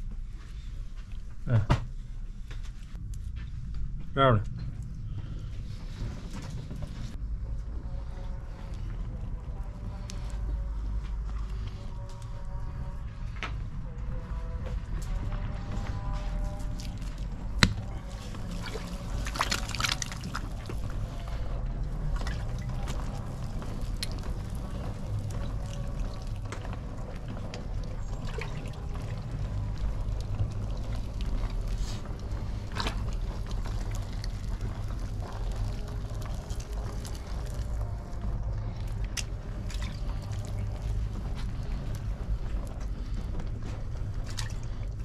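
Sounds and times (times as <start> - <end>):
steady low rumble: 0.0 - 45.0
wet clay squelching and slapping: 15.0 - 45.0.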